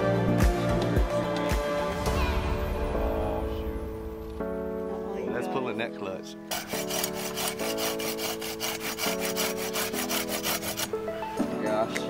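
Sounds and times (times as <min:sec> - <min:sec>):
background music: 0:00.0 - 0:12.0
hand saw cutting branch: 0:06.5 - 0:11.0.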